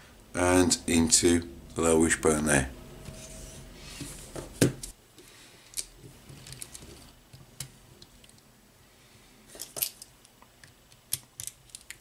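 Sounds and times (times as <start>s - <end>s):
plastic parts clicking and tapping: 9.7s - 12.0s.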